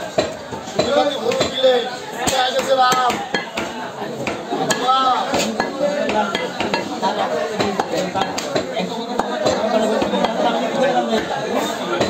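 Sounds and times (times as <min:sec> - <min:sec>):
cleaver chopping meat on wood: 0:02.2 - 0:06.9.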